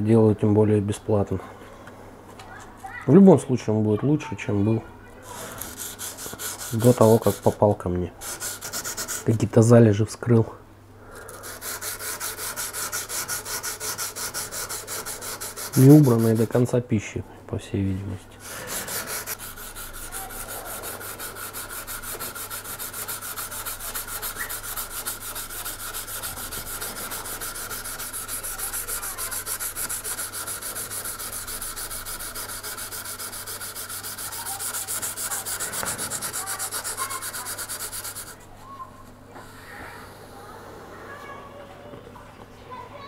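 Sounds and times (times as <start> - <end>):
sandpaper on knife blade: 5.3 - 7.6, 8.2 - 9.3, 11.2 - 16.6, 18.4 - 38.4.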